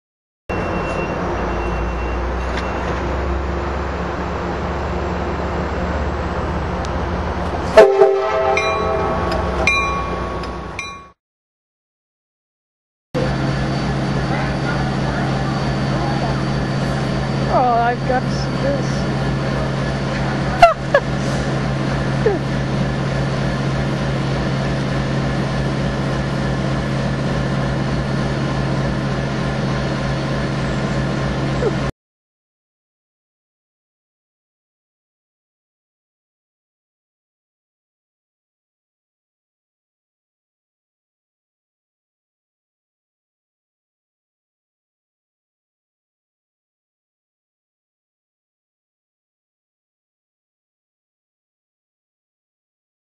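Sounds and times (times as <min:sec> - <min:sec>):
diesel locomotive engine idling: 0:00.5 - 0:11.1, 0:13.2 - 0:31.9
train rumbling: 0:00.5 - 0:11.2, 0:13.2 - 0:31.9
train air horn blast: 0:07.7 - 0:09.6.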